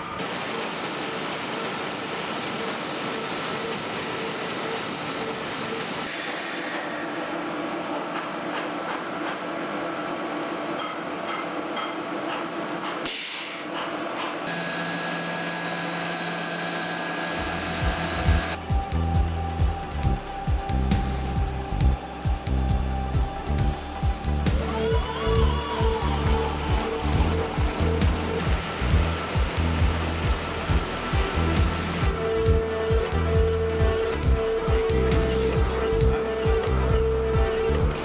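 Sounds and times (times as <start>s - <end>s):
running machinery: 0.0s - 38.0s
low motor hum: 14.5s - 38.0s.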